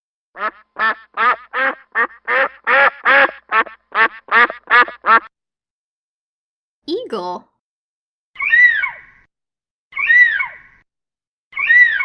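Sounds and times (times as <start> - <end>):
duck quacking: 0.4 - 5.3.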